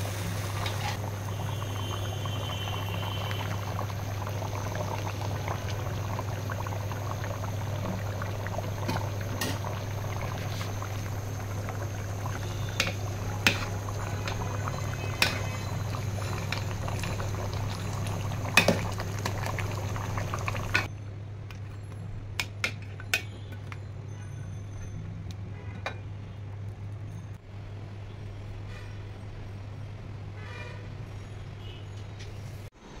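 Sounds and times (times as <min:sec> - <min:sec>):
curry bubbling in a pot: 0:00.2 - 0:20.9.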